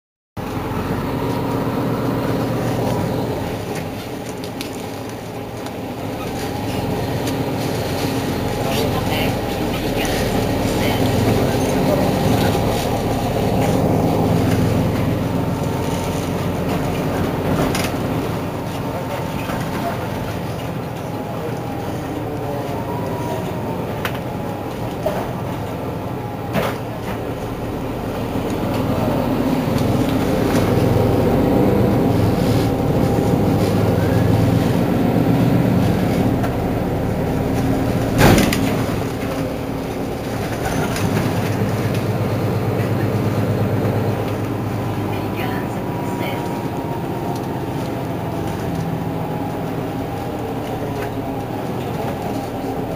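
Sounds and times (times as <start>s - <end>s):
bus engine idling: 0.4s - 52.9s.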